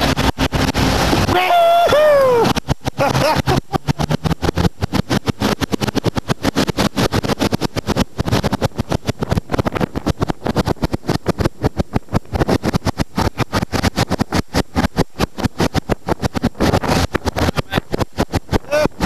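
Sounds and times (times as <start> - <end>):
water spray: 0.0 - 9.5
jet boat engine: 0.0 - 19.0
wind buffeting microphone: 0.0 - 19.0.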